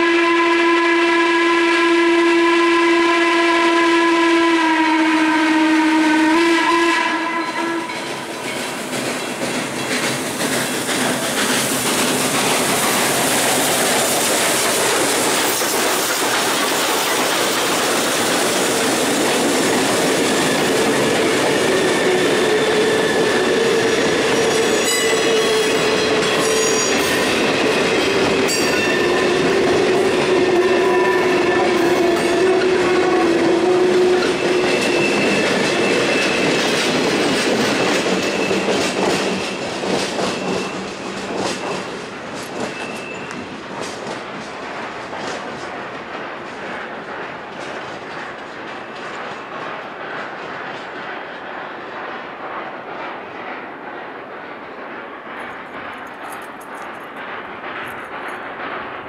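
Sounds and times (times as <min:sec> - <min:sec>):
steam whistle blast: 0:00.0 - 0:08.0, 0:28.5 - 0:35.4
steam locomotive working: 0:00.0 - 0:59.0
wheels clacking over rail joints: 0:07.5 - 0:51.5, 0:52.2 - 0:59.0
wheel flanges squealing: 0:42.6 - 0:43.4.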